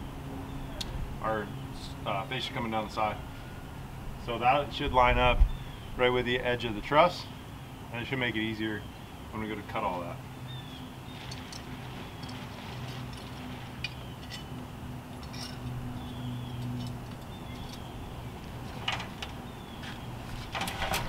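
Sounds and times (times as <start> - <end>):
steady low hum: 0.0 - 21.0
wind noise on microphone: 4.8 - 6.0
light metallic clinks: 15.2 - 17.9.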